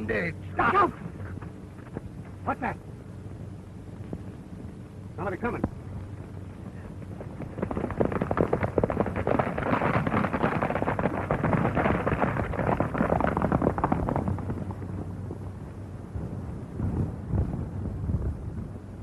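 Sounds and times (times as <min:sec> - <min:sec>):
horses galloping: 0:06.0 - 0:16.2.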